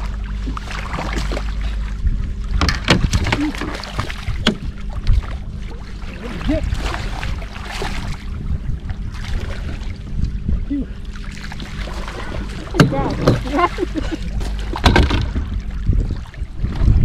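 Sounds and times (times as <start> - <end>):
fish splashing in water: 0.0 - 1.8
steady low hum: 0.0 - 17.0.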